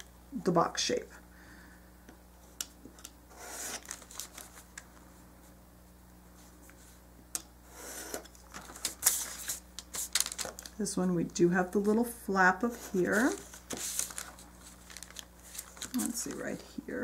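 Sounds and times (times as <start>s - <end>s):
scoring tool scraping card: 3.3s - 4.0s, 7.7s - 8.3s, 12.7s - 14.2s
paper handling: 3.5s - 5.0s, 8.1s - 10.8s, 12.7s - 16.6s.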